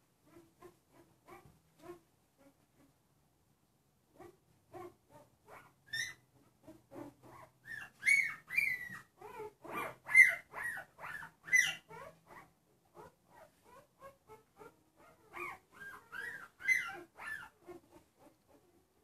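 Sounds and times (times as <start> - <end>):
newborn puppy crying: 4.2 - 18.8.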